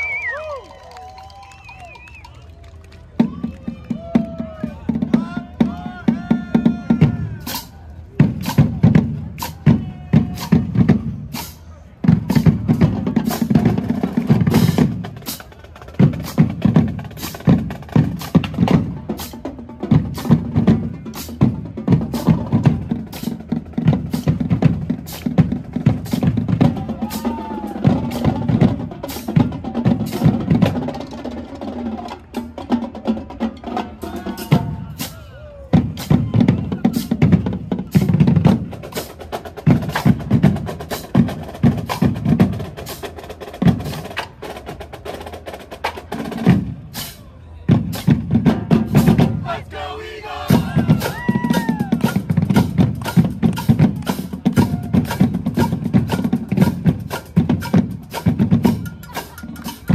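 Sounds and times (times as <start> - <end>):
snare drums: 3.2 - 59.9
bass drums: 12.0 - 30.9, 50.4 - 59.9.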